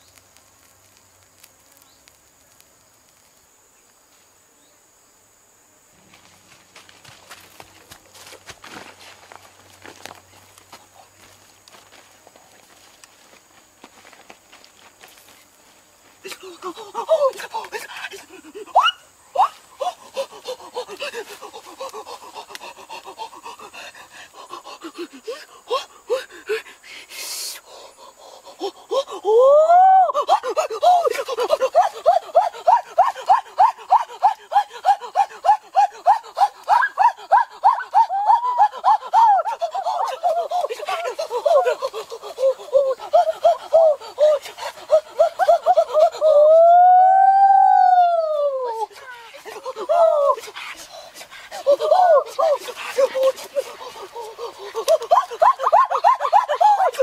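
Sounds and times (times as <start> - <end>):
boy panting and gasping: 16.2 - 18.8, 19.6 - 46.7, 48.3 - 57.0
child's long high cry: 28.9 - 50.6, 51.6 - 57.0
child giggling: 51.6 - 57.0.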